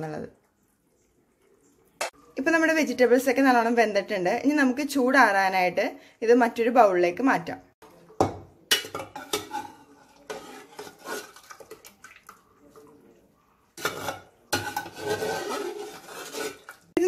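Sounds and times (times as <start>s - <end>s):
metal ladle scraping cooker: 8.7s - 11.8s, 13.8s - 17.0s
liquid splashing: 10.0s - 13.3s, 14.6s - 17.0s.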